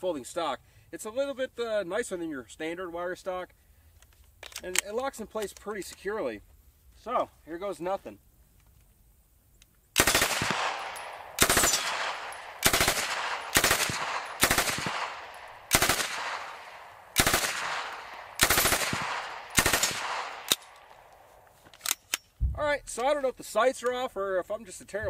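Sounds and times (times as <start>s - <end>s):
submachine gun bursts: 10.0s - 20.8s
gunfire echo: 10.0s - 21.2s.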